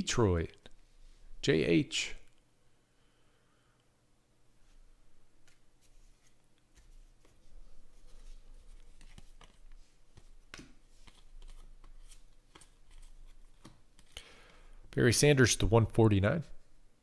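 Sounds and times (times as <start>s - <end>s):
cards clicking and sliding: 5.4s - 7.4s, 8.1s - 14.2s.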